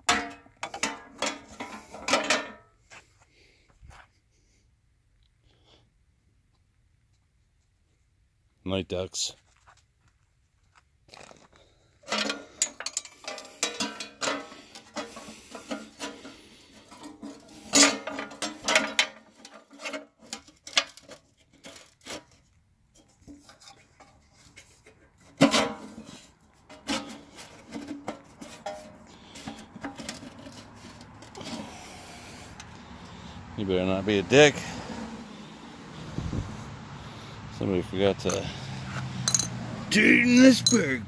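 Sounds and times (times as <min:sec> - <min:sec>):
hands and tools rubbing and scraping: 0:12.3 - 0:33.2.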